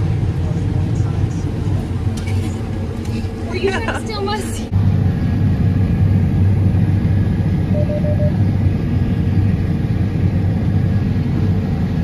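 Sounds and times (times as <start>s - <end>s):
combine harvester rumble: 0.0s - 12.0s
faint beeping: 7.7s - 8.4s.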